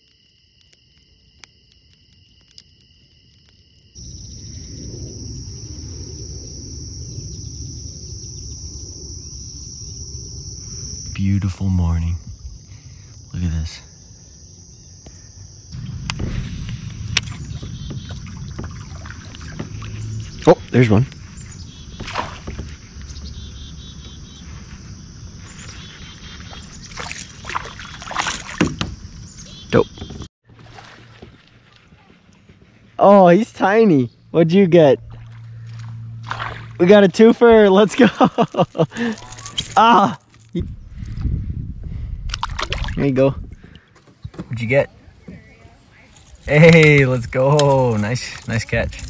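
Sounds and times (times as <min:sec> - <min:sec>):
high-pitched insect trilling: 0:00.0 - 0:29.9, 0:36.8 - 0:41.4, 0:45.5 - 0:49.0
low rumbling noise: 0:04.0 - 0:13.1, 0:15.6 - 0:22.0.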